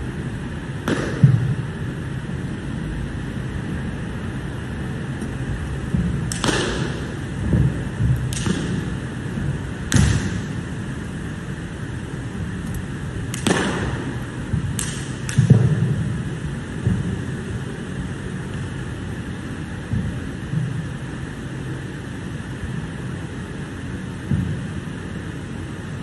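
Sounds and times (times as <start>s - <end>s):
room noise: 0.0s - 26.0s
sharp slaps of kicks and strikes: 0.8s - 1.7s, 5.9s - 9.1s, 9.8s - 10.6s, 13.3s - 16.2s.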